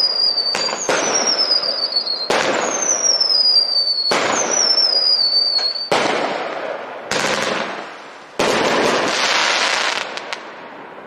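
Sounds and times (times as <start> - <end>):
firework whistle falling in pitch: 0.0 - 6.1
firework bangs: 0.0 - 11.0
firework hissing and crackle: 0.0 - 11.0.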